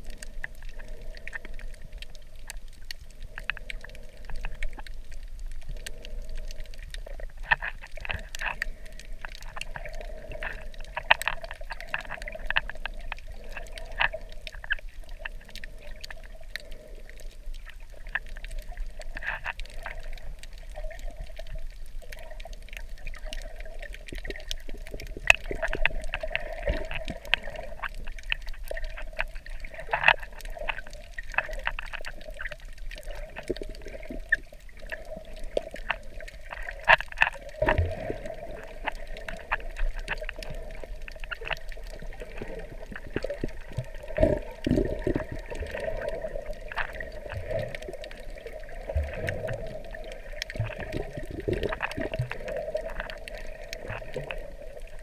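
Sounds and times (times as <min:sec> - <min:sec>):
muffled underwater water wash: 0:00.0 - 0:55.0
sharp underwater clicks and crackles: 0:00.0 - 0:55.0.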